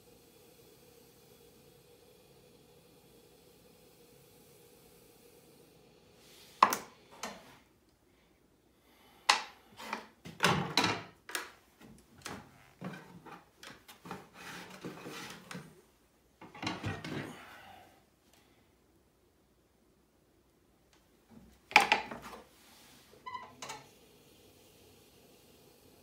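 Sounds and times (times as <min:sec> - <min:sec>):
soft rubbing: 0:12.4 - 0:15.9.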